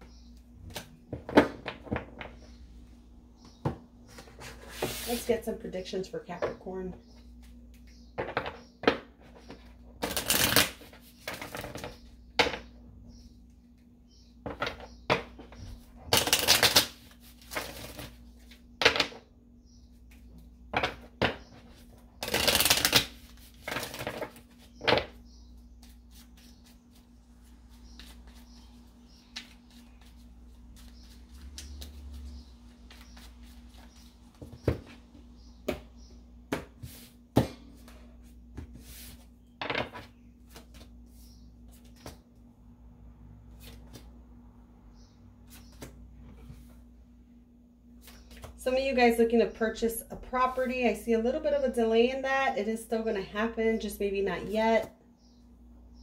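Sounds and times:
cards being shuffled: 22.2s - 24.7s, 29.3s - 34.1s, 40.5s - 41.0s.

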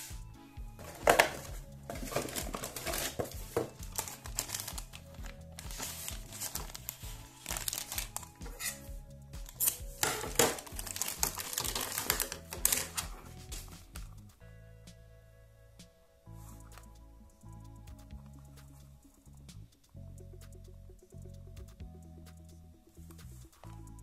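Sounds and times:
background music: 0.0s - 24.0s
plastic bag crinkling: 0.8s - 8.8s, 9.5s - 13.2s.

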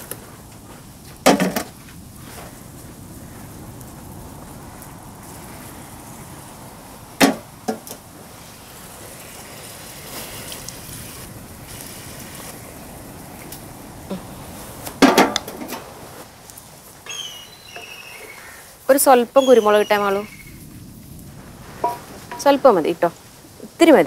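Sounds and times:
sauce hissing in a wok: 2.3s - 14.9s.

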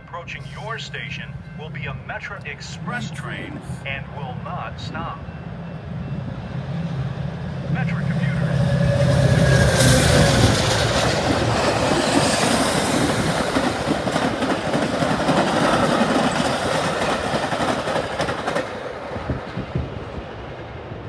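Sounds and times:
train passing at speed: 0.0s - 21.0s
train wheels clacking on rails: 8.1s - 20.0s.

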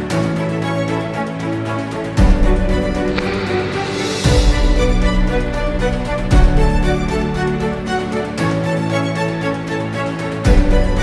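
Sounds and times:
held chords over quick pulse: 2.3s - 7.8s.

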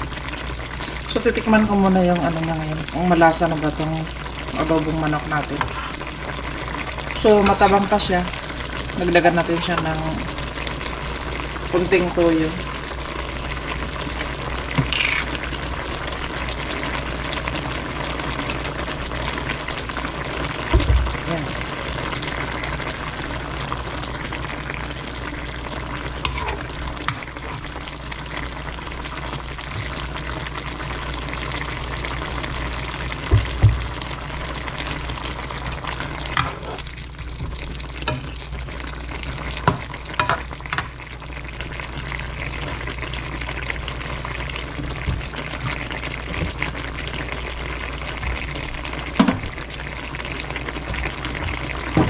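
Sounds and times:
stew sizzling in a wok: 0.0s - 52.0s
spatula scraping a pan: 5.6s - 6.0s, 7.4s - 8.0s, 14.8s - 15.4s, 26.2s - 27.7s, 36.3s - 36.9s.

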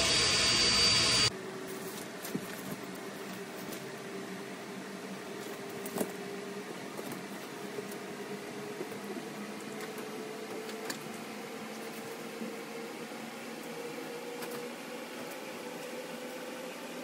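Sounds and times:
machine hum: 0.0s - 1.6s.

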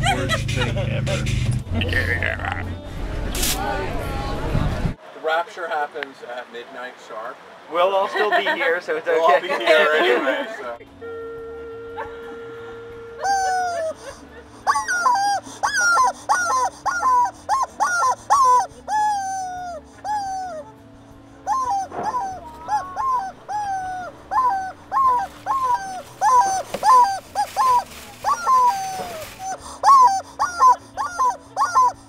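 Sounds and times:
rubber chicken toy squawking: 13.2s - 20.7s, 21.4s - 32.0s.

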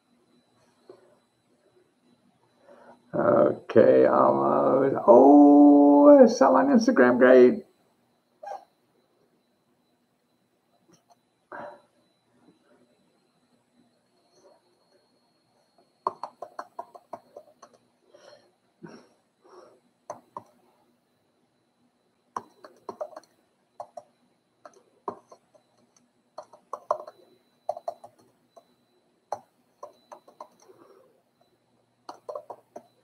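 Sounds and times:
computer keyboard typing: 16.0s - 17.8s, 20.1s - 20.6s, 22.4s - 28.7s, 29.3s - 30.9s, 32.1s - 33.0s.

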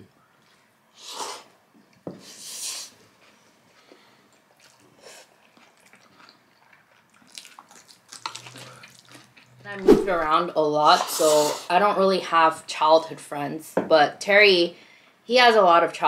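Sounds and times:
soft chewing with wet clicks: 3.2s - 9.7s.

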